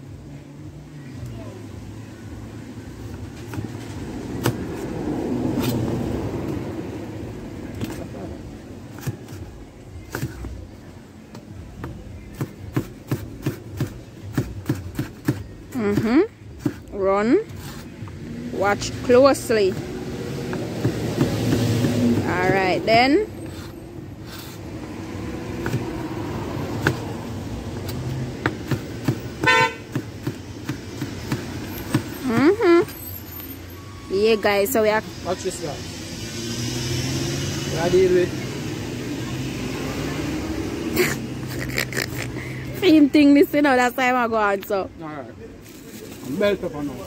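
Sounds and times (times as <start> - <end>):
knife chopping carrot on board: 20.5 - 22.7
car horn toot: 29.4 - 29.9.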